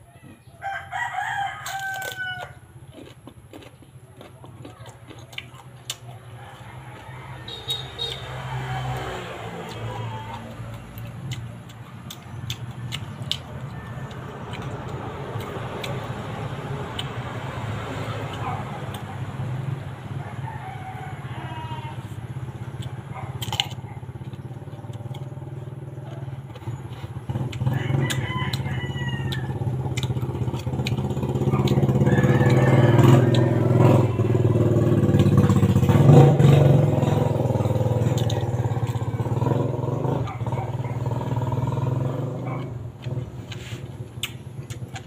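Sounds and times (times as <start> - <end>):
rooster crowing: 0.0 - 2.7, 6.1 - 10.7, 13.3 - 15.4, 19.6 - 22.5, 27.5 - 30.5, 31.2 - 42.6
crunching bites of mango: 1.2 - 19.8, 22.0 - 45.0
motor engine running: 21.7 - 45.0.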